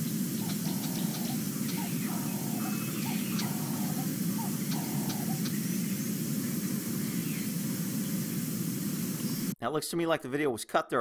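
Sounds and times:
low rushing noise: 0.0 - 9.6
faint short bird calls: 0.4 - 5.6.

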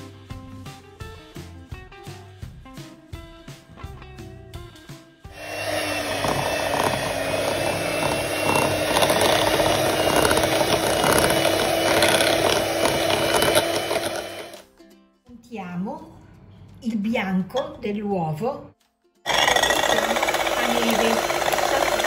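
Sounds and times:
light guitar music: 0.0 - 5.1, 14.6 - 15.4
electric hand mixer running: 5.3 - 14.6, 19.3 - 22.0.

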